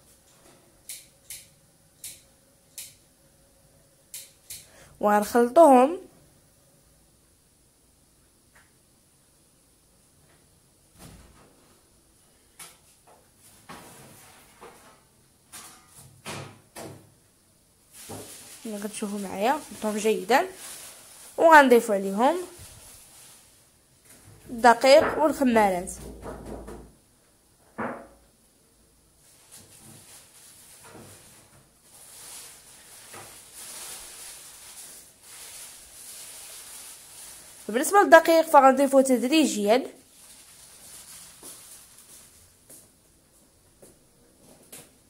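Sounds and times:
faint rustling and scraping: 11.2s - 16.2s, 17.9s - 26.0s, 29.2s - 38.0s, 40.0s - 45.0s
hand mixing dough in plastic bowl: 18.0s - 23.2s
objects knocking on counter: 27.7s - 28.2s.

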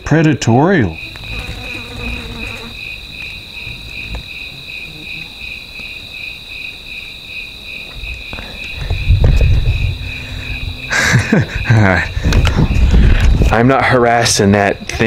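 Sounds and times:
insects pulsing trill: 0.1s - 15.0s
steady high whine: 8.7s - 15.0s
low rumble: 8.9s - 13.6s.

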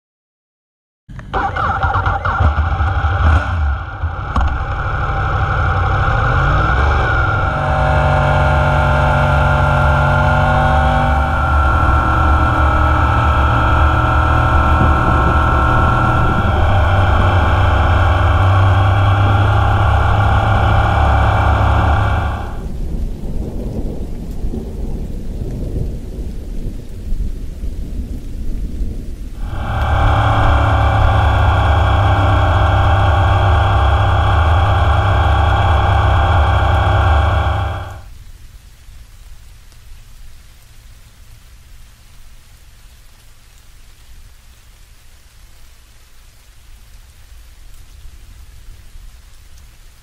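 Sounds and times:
low uneven rumbling: 1.2s - 24.8s, 28.8s - 38.4s
wind noise: 2.3s - 38.1s
rain hiss: 3.2s - 50.0s
raindrop ticks: 10.8s - 50.0s.

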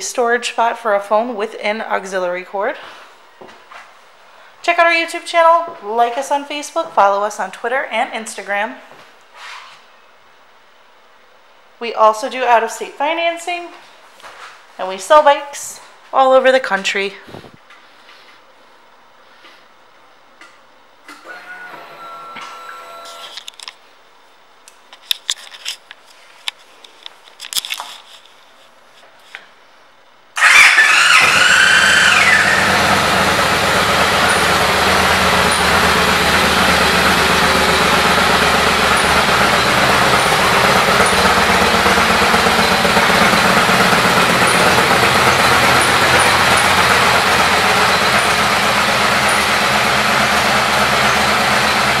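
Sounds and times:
motorcycle engine idling: 30.4s - 52.0s
starter motor cranking with whine: 30.4s - 52.0s.

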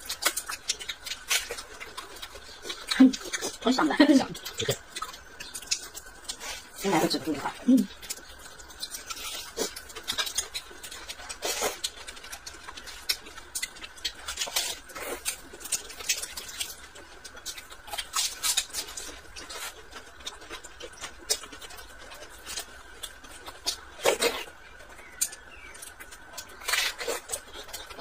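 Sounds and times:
chewing and lip-smacking: 0.0s - 28.0s.

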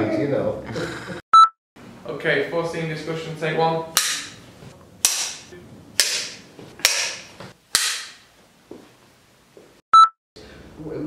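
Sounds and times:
clapperboard snapping shut: 4.0s - 4.4s, 5.0s - 8.2s
loud high beep: 10.0s - 10.2s.

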